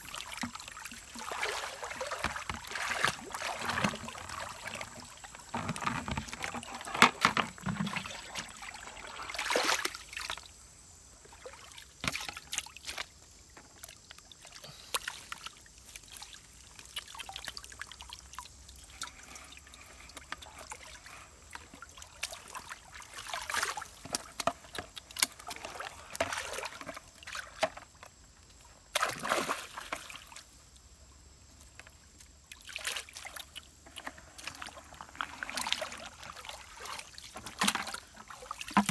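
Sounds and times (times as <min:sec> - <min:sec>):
water splashing and trickling: 0:00.0 - 0:38.9.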